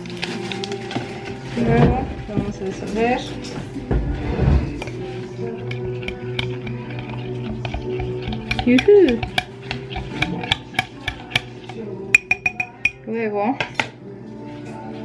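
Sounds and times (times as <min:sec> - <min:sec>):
spoon clinking in glass mug: 0:05.6 - 0:13.1.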